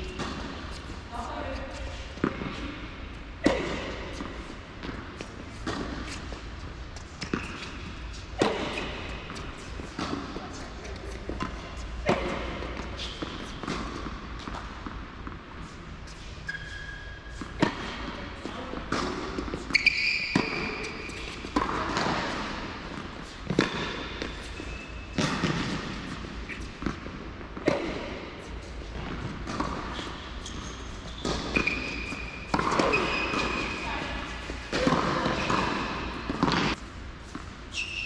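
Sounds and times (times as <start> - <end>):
tennis balls struck by rackets: 0.0 - 15.6, 17.4 - 37.5
balls bouncing on hard court: 0.0 - 15.7, 17.3 - 37.5.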